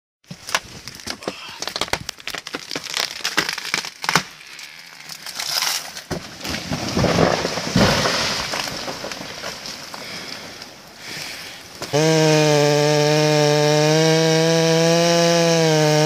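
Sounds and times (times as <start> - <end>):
tree trunk cracking: 0.2 - 16.0
heavy crash of tree trunk: 0.3 - 4.5, 5.1 - 10.8
rush of falling branches: 0.3 - 12.0
rattle of settling debris: 5.1 - 11.9.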